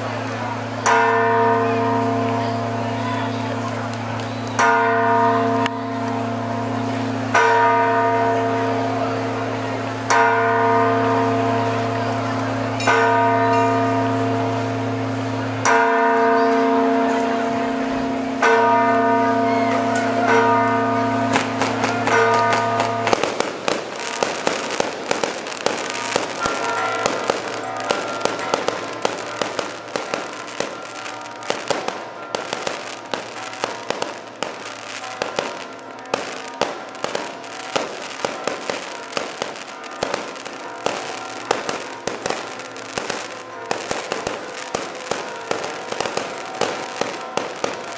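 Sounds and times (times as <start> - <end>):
church bells ringing: 0.0 - 47.9
firecracker bangs and crackles: 18.4 - 47.9.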